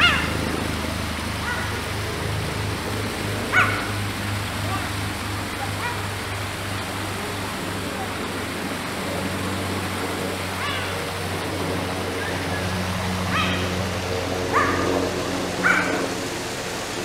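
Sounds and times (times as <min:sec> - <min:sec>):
low hum with rushing hiss: 0:00.0 - 0:17.0
cheetah chirping yelps: 0:03.5 - 0:03.9, 0:13.3 - 0:13.7, 0:14.5 - 0:14.9.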